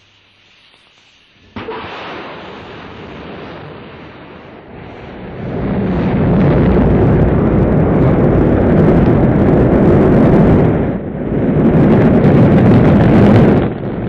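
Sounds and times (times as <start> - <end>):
rocket engine roar: 1.4 - 14.0.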